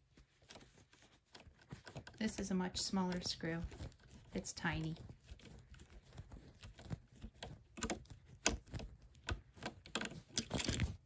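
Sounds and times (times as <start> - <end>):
screwdriver clicking and scraping: 5.4 - 11.0.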